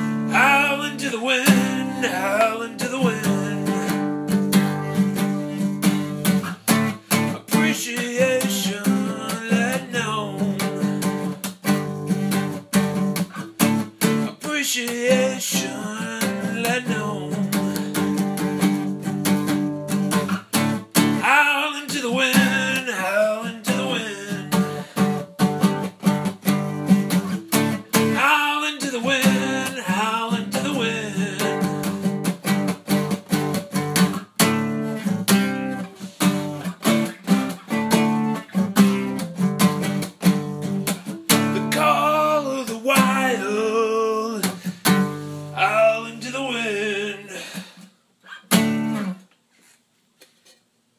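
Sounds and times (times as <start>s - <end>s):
acoustic guitar strumming: 0.0s - 49.3s
person singing wordless lines: 0.1s - 4.3s, 7.1s - 11.4s, 14.1s - 18.4s, 21.1s - 25.2s, 27.6s - 32.2s, 41.0s - 48.6s.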